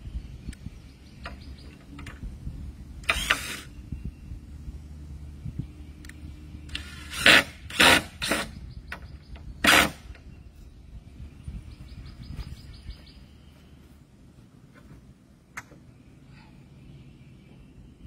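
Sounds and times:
cordless drill driving screws: 3.0 - 3.7, 6.7 - 8.5.

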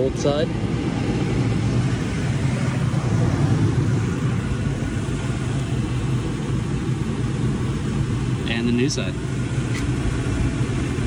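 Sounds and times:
pickup engine idling: 0.0 - 11.0.

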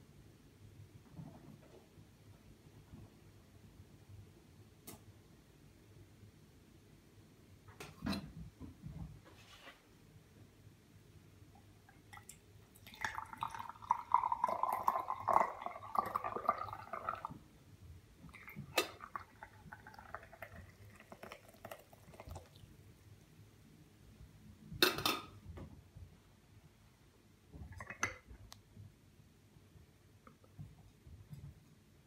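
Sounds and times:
tea pouring into glass: 12.1 - 17.3, 18.3 - 22.7
hot water pouring: 12.1 - 17.4, 18.3 - 22.7.

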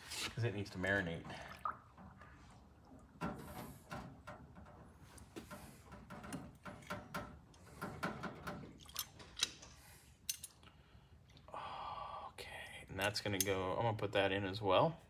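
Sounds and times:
small metal parts clicking: 10.3 - 10.6.

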